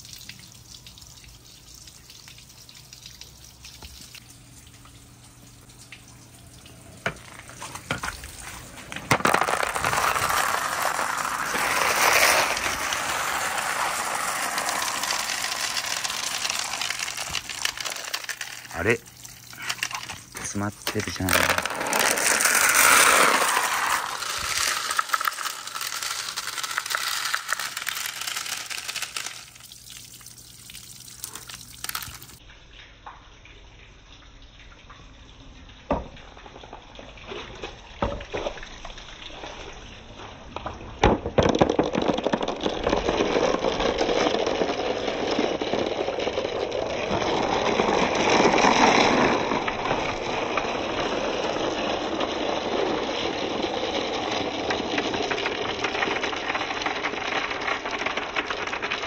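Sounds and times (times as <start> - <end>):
marbles knocking and clicking: 7.0 - 32.4, 40.6 - 59.0.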